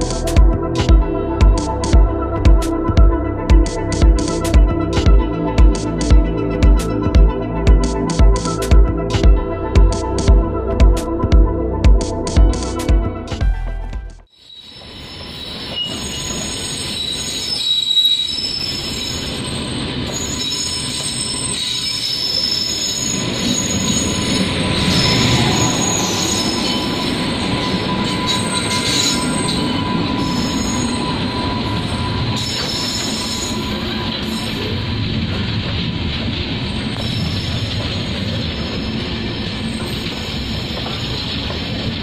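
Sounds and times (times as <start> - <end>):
high wheel squealing: 14.6 - 42.0
passing passenger train: 14.6 - 42.0
train wheels rumbling on rails: 15.0 - 42.0.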